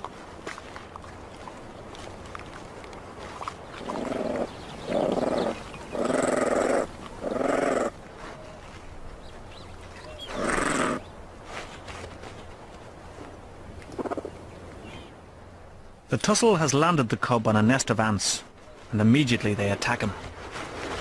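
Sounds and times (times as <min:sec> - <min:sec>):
honey badgers growling: 0:03.8 - 0:08.0, 0:10.2 - 0:11.0.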